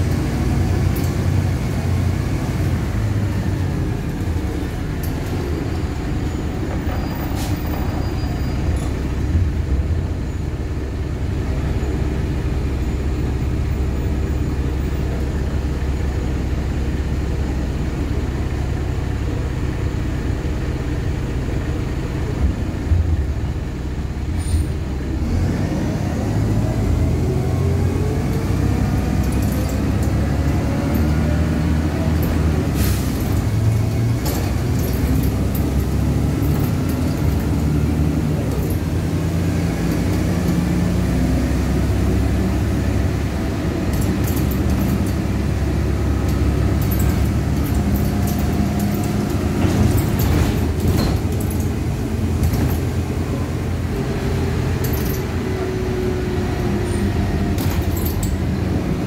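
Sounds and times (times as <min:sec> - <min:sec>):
bus engine hum and whine: 0:00.0 - 0:59.0
short rattles and clicks: 0:46.2 - 0:53.2, 0:54.8 - 0:55.4.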